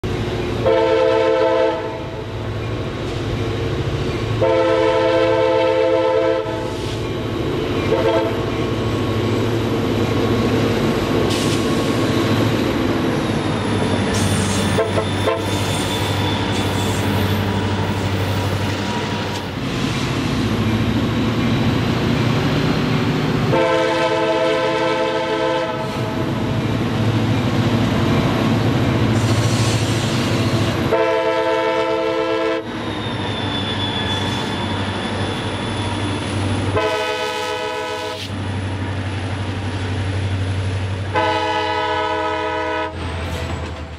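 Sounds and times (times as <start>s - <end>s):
locomotive air horn blasts: 0.6s - 2.1s, 4.4s - 6.9s, 7.8s - 8.5s, 14.7s - 15.8s, 23.5s - 26.2s, 30.8s - 32.7s, 36.7s - 38.3s, 41.1s - 43.0s.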